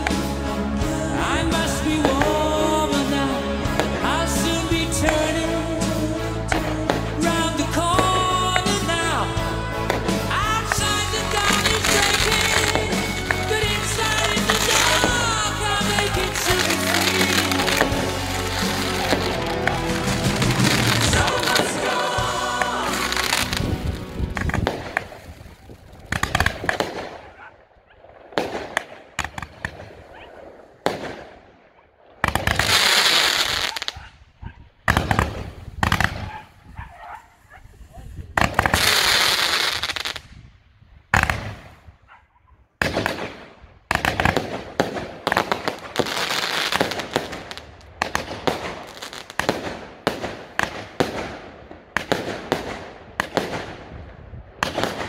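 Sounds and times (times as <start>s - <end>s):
fireworks hissing: 0.0s - 27.0s, 32.5s - 34.1s, 37.3s - 40.4s, 45.3s - 47.7s
fireworks bangs: 0.0s - 40.5s, 41.1s - 42.0s, 42.8s - 55.0s.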